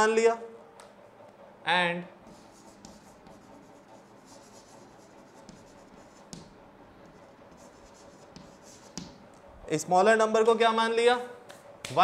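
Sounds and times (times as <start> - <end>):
chalk scratching on chalkboard: 2.2 - 9.2
chalk tapping: 2.2 - 9.4.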